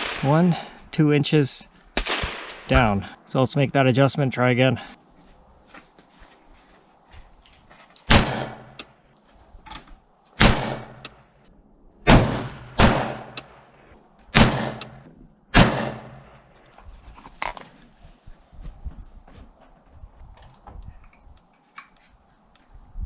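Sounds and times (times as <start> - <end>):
rifle shots echoing: 0.0 - 0.7, 2.0 - 3.1, 8.1 - 8.8, 10.4 - 11.3, 12.0 - 16.5.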